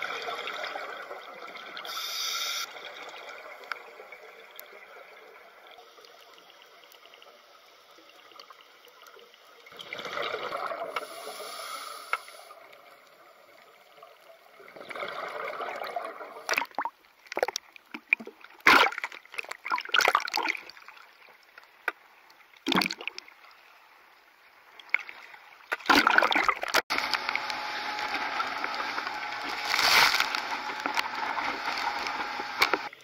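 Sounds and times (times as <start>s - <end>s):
seawater sloshing and splashing: 28.8s - 32.9s.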